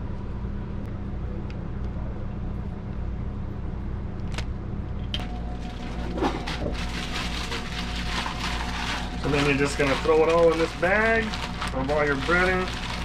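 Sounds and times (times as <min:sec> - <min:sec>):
low hum: 0:00.0 - 0:13.0
plastic bag crinkling: 0:05.2 - 0:13.0.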